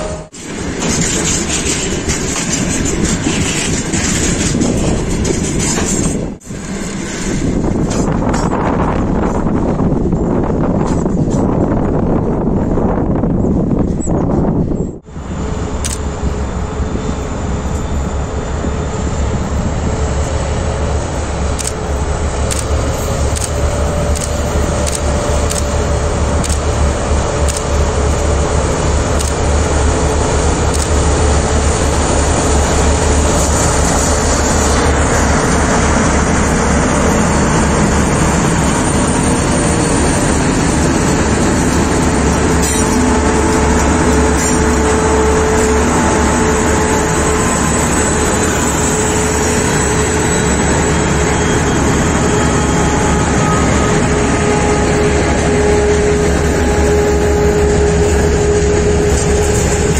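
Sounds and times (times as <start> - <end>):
diesel locomotive drone: 0.0 - 59.9
wheels rolling on rails: 0.4 - 6.4, 21.6 - 51.6.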